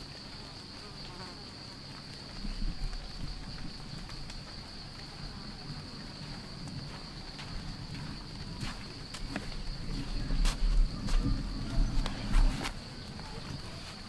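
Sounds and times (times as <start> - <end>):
insects droning: 0.0 - 14.0
low rumble: 9.4 - 12.9.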